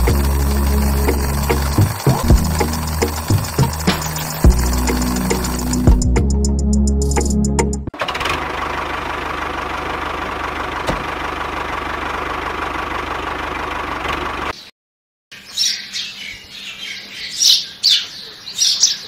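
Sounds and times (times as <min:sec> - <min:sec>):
small motor whining: 0:00.0 - 0:06.1
birds chirping: 0:00.0 - 0:06.5, 0:15.3 - 0:19.0.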